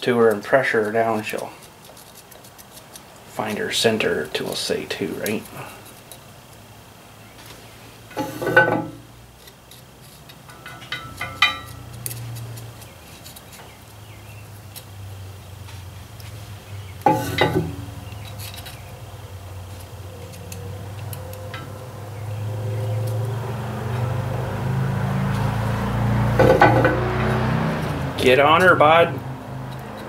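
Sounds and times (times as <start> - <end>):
small metal clicks: 9.4 - 14.0, 17.0 - 18.9, 19.7 - 21.7, 29.6 - 30.0.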